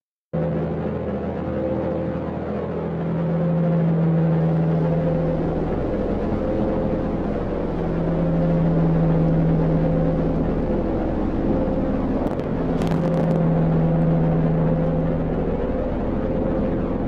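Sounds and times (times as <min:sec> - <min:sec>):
engine-like drone: 0:00.3 - 0:17.0.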